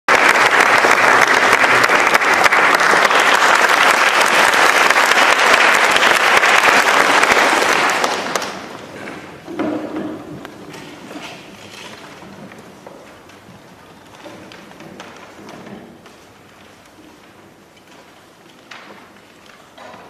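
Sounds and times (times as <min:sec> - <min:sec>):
audience applauding: 0:00.1 - 0:09.0.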